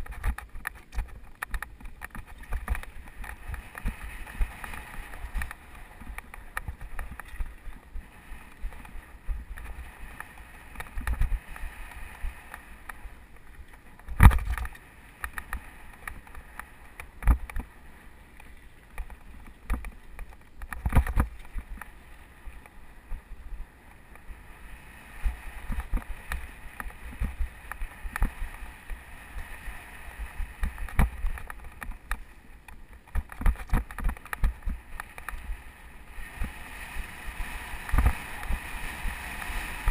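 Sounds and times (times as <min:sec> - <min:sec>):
bike knocks and rattles: 0:00.0 - 0:11.7, 0:12.4 - 0:17.7, 0:18.4 - 0:22.0, 0:30.4 - 0:35.6
wind buffeting microphone: 0:32.9 - 0:39.9.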